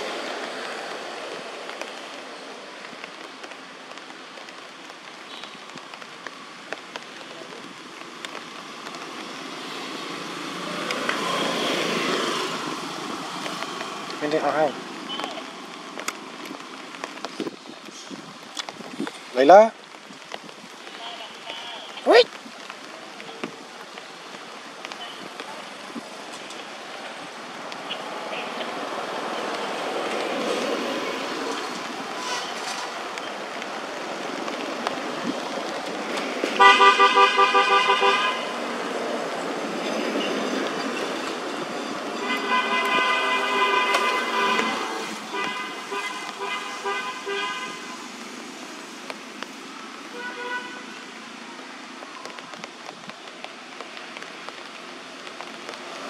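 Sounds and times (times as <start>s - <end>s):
cars passing: 0.0s - 5.2s, 6.3s - 17.3s, 23.6s - 56.0s
car horns tooting: 36.6s - 38.5s, 42.2s - 47.9s, 50.2s - 51.0s.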